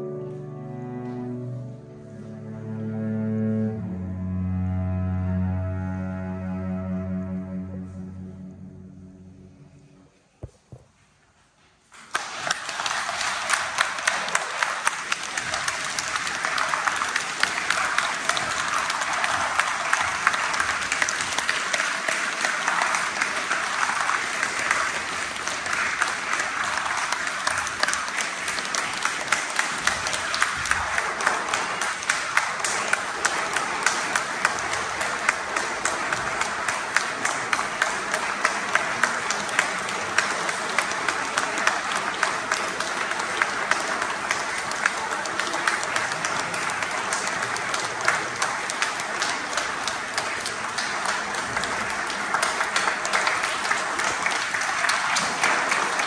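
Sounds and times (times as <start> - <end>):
audience applauding: 12.0 - 56.0.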